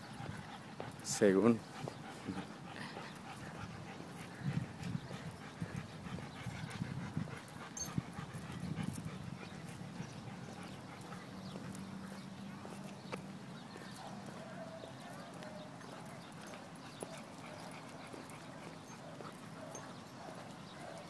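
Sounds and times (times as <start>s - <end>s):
wind on microphone: 3.3s - 10.1s.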